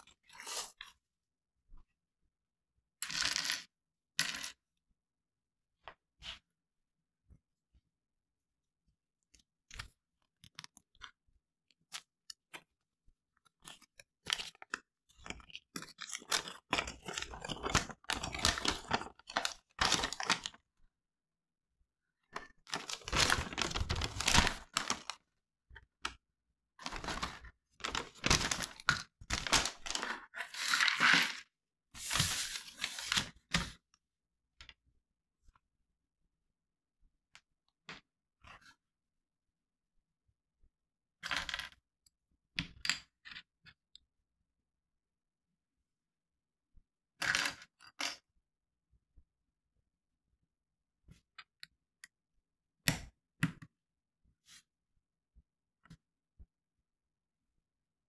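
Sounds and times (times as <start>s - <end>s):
paper crinkling and rustling: 13.6s - 20.6s, 22.4s - 25.2s, 26.8s - 31.4s, 32.0s - 33.8s.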